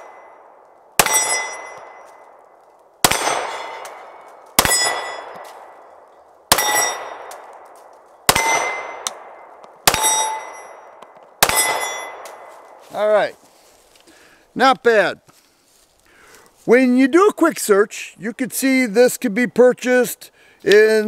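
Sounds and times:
pistol shots: 1.0 - 2.0, 3.0 - 5.8, 6.5 - 7.7, 8.3 - 12.6.

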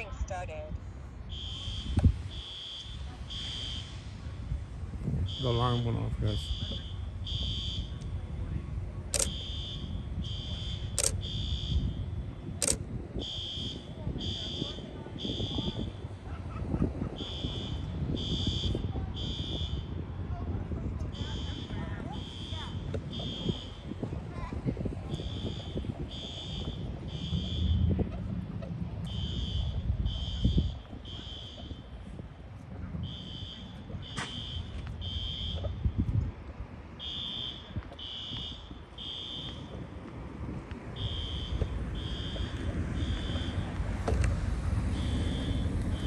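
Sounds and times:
low rumble: 0.0 - 37.0
pulsing electronic alarm tone: 1.3 - 3.9, 5.2 - 8.0, 9.1 - 16.1, 17.1 - 20.0, 21.2 - 24.0, 25.0 - 28.2, 29.0 - 32.0, 33.0 - 35.8, 37.0 - 39.8, 41.0 - 43.7, 44.9 - 46.0
sharp clicks: 9.2 - 9.4, 11.0 - 11.2, 12.6 - 12.8.

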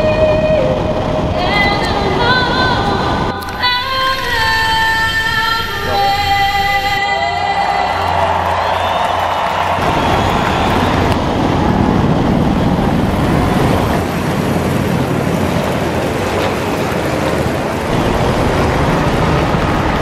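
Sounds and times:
helicopter rotor and turbine noise: 0.0 - 7.0, 8.6 - 20.0.

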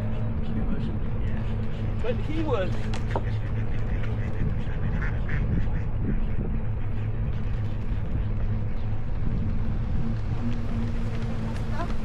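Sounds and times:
wind rumble on microphone: 0.0 - 12.0
ducks quacking: 0.1 - 9.0, 11.2 - 12.0.

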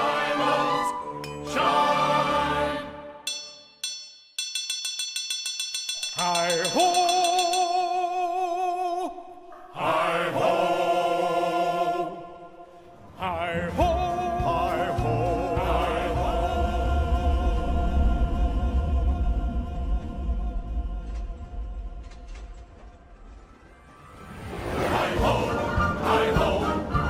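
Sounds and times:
voices singing held notes: 0.0 - 3.2, 9.7 - 21.4, 24.8 - 27.0
soft musical accompaniment: 0.0 - 3.3
fast ticking: 3.3 - 8.0.

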